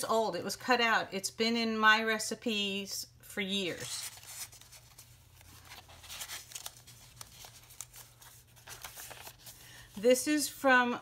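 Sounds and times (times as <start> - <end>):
paper rustling and scraping: 3.7 - 10.0.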